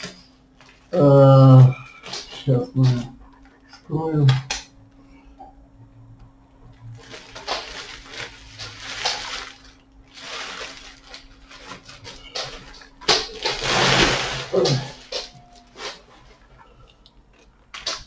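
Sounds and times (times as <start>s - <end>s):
plastic bag rustling: 6.9s - 16.6s.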